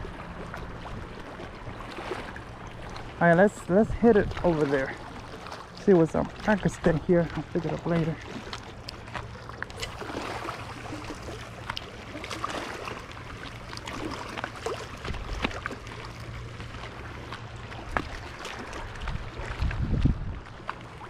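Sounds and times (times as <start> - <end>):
wind rumbling on microphone: 0.0 - 8.2, 16.9 - 21.0
small waves lapping on rocks: 0.0 - 21.0.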